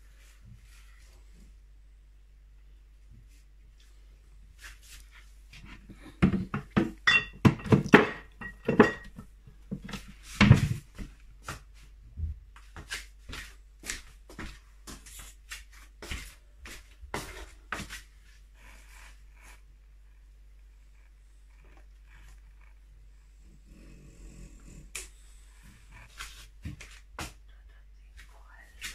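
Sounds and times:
kitchenware knocks and clinks: 6.2 - 9.2.

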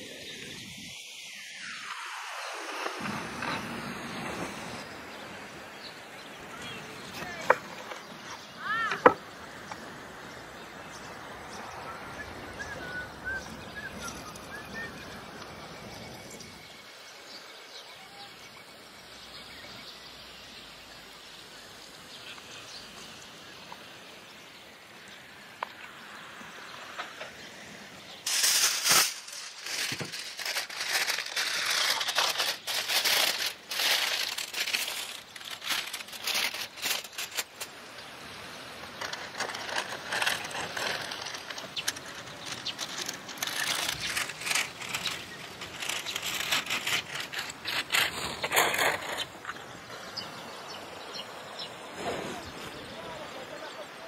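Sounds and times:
outdoor background noise: 0.0 - 54.0
aluminium foil crinkling: 28.3 - 37.8, 38.9 - 49.6.

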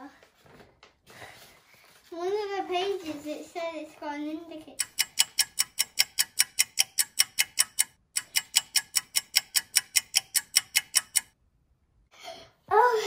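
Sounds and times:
toy turn-indicator ticking: 4.8 - 11.4.

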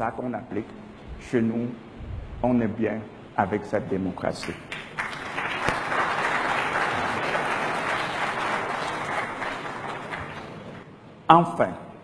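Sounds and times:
audience applauding in a hall: 4.4 - 10.9.

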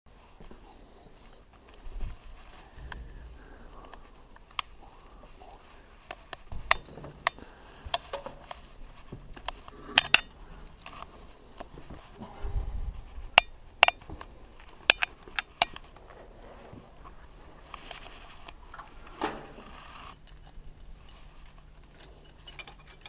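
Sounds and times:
low rumble: 2.7 - 5.1.

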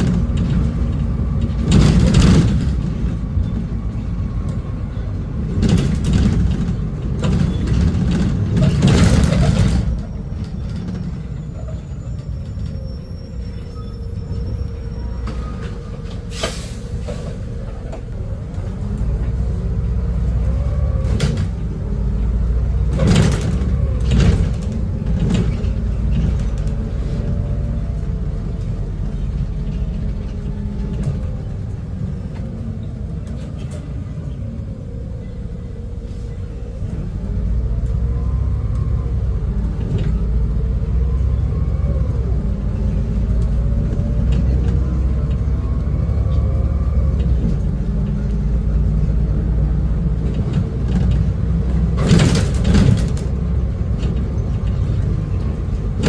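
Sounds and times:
bus engine and road rumble: 0.0 - 56.0
rattling inside bus: 0.0 - 56.0.

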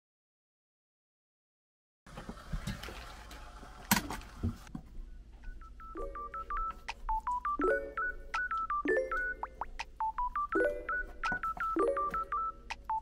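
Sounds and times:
kitchen handling noise: 3.8 - 4.6
light background music: 5.4 - 13.0.

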